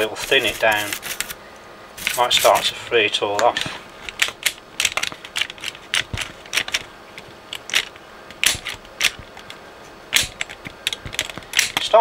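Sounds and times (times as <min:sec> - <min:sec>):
cassette mechanism clicks and clacks: 0:03.4 - 0:12.0.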